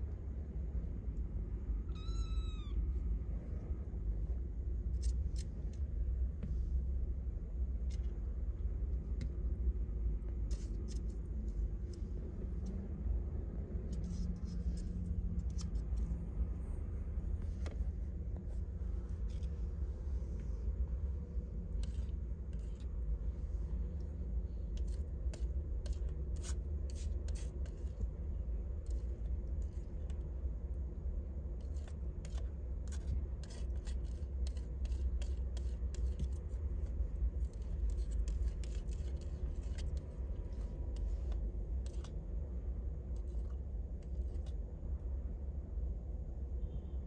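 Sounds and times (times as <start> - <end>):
steady low hum: 0.0 - 47.0
light clicking and scratching: 7.6 - 9.6, 10.2 - 13.0, 13.7 - 16.4, 17.3 - 30.4, 31.4 - 44.7.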